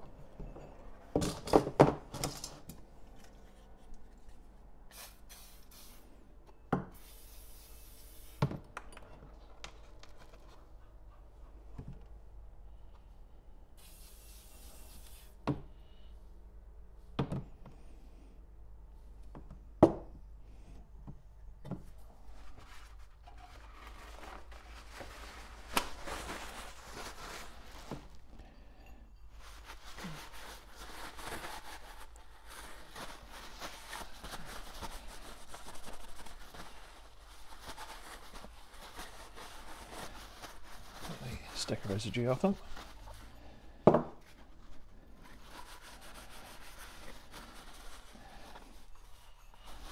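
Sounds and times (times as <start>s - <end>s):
aerosol spray hiss: 4.9s - 6.0s, 6.9s - 8.4s, 13.8s - 15.4s.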